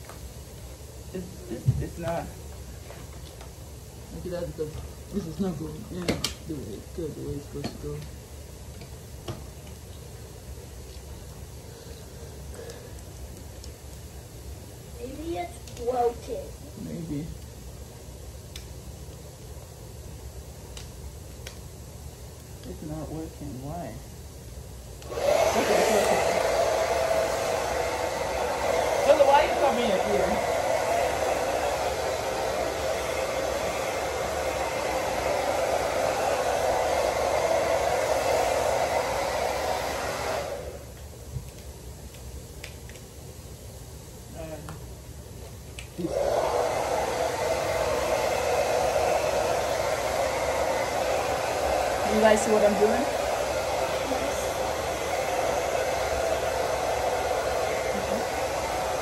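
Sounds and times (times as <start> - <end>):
hair dryer blowing: 0.0 - 3.2, 25.0 - 41.6, 45.9 - 59.0.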